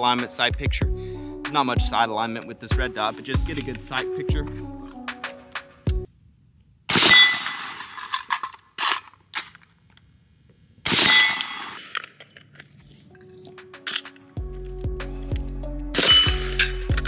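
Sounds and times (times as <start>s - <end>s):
steel plate target clanging: 6.9s - 8.4s, 11.0s - 11.9s, 16.0s - 16.9s
suppressed rifle shots: 10.9s - 11.9s.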